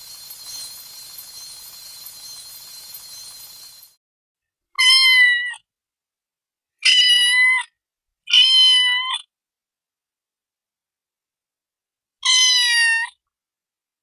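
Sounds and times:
high-pitched cat meows: 0:04.8 - 0:05.7, 0:06.8 - 0:09.3, 0:12.2 - 0:13.2.

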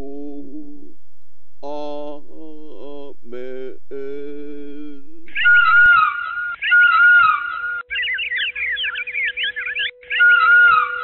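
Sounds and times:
steady low tone: 0:00.0 - 0:05.9
whistled bird-like chirping: 0:05.3 - 0:11.0.

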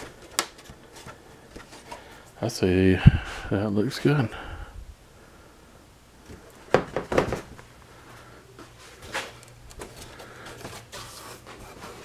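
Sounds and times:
panel knocking on a workbench: 0:06.7 - 0:07.5.

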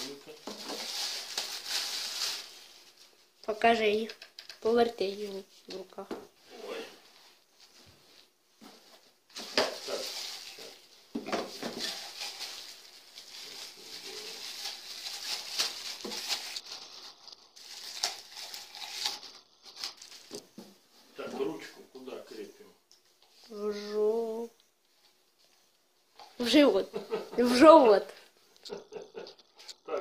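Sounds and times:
plastic packaging rustling: 0:00.0 - 0:05.4, 0:08.8 - 0:20.6.

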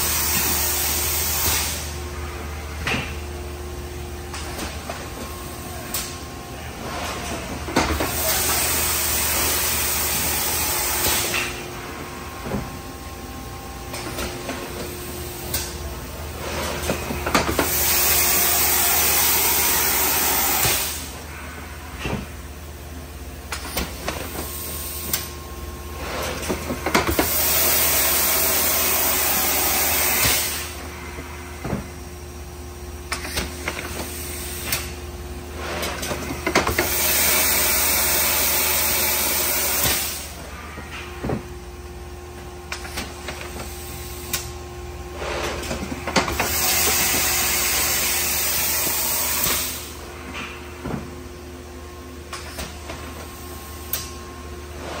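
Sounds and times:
loud air hiss: 0:00.0 - 0:02.0, 0:17.6 - 0:21.2, 0:27.2 - 0:30.8, 0:36.8 - 0:40.4, 0:46.3 - 0:50.0.

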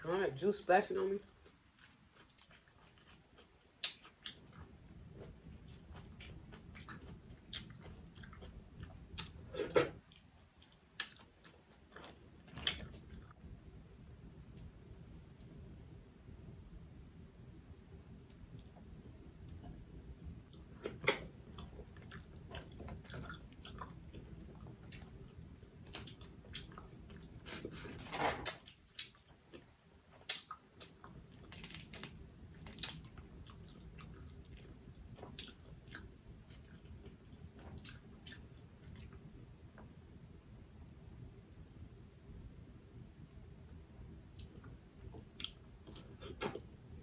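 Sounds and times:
chewing and mouth sounds: 0:01.3 - 0:13.4, 0:19.4 - 0:27.8, 0:28.4 - 0:39.3, 0:44.3 - 0:46.8
crawfish shells cracking: 0:30.3 - 0:33.0.

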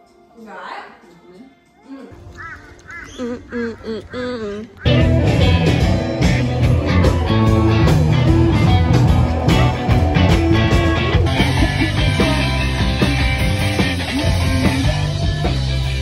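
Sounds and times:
rock music with electric guitar: 0:04.8 - 0:16.0.

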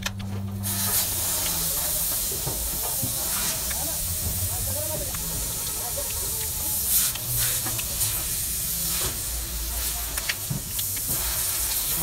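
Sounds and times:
low hum: 0:00.0 - 0:01.9.

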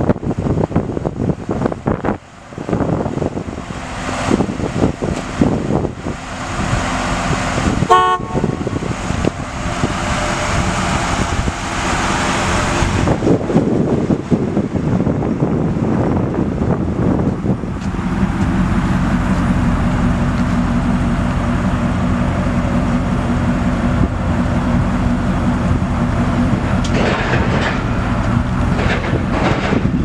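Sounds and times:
car engine running: 0:00.0 - 0:30.0
wind noise on microphone: 0:00.0 - 0:30.0
car horn toot: 0:07.9 - 0:08.7.

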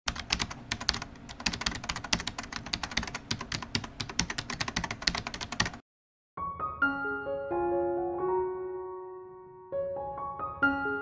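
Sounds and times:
typing on computer keyboard: 0:00.1 - 0:05.8.

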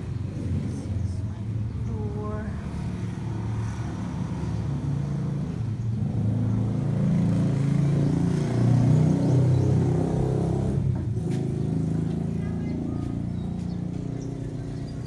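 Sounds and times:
motorcycle engine running: 0:05.8 - 0:15.0.

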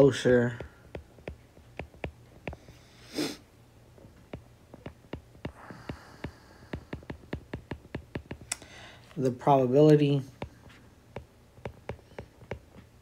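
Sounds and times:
stylus tapping on glass screen: 0:00.6 - 0:02.8, 0:04.0 - 0:08.6, 0:10.4 - 0:12.9
person sniffing: 0:02.6 - 0:03.5.

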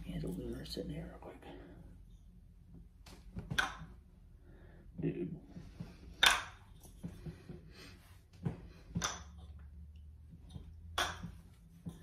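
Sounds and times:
wooden toy knocking: 0:10.8 - 0:11.4.

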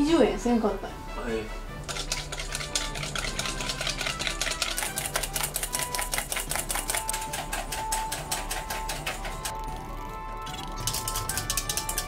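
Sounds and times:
whisk clicking against metal bowl: 0:01.8 - 0:09.6, 0:10.8 - 0:12.0.

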